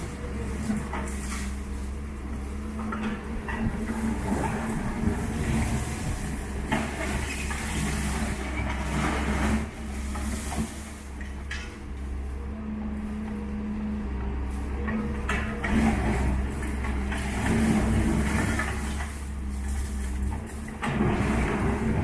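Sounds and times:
excavator diesel engine running: 0.0 - 22.0
rubble crunching and clattering: 15.3 - 22.0.

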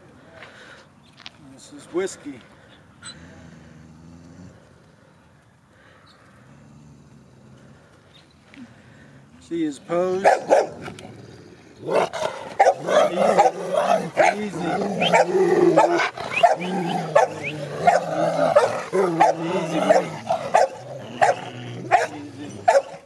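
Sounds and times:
dogs barking: 10.2 - 10.8, 11.9 - 23.0
dogs whining and yelping: 12.6 - 21.4.

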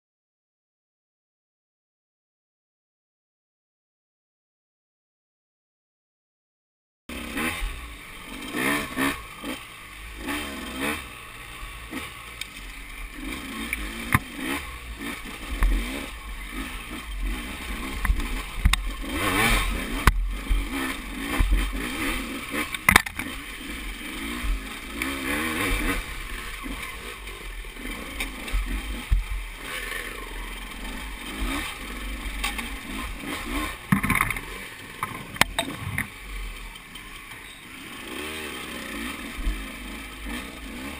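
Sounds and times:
dirt bike engine revving: 7.1 - 40.9.

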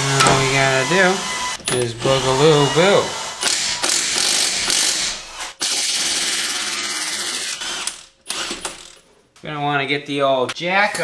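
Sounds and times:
impact wrench hammering on bolts: 0.1 - 0.8.

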